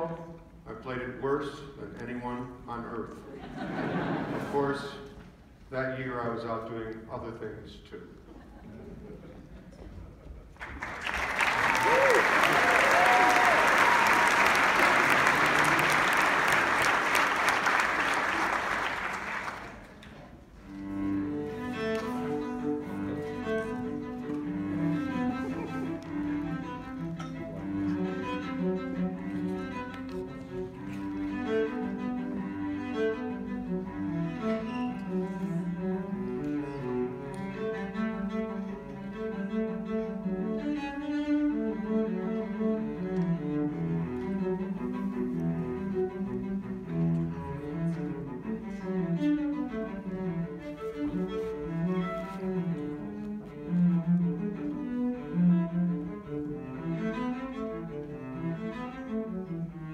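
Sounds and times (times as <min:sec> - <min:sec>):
chamber music trio: 0:08.1 - 0:59.9
audience applause: 0:10.5 - 0:20.1
low bowed cello notes: 0:20.5 - 0:59.9.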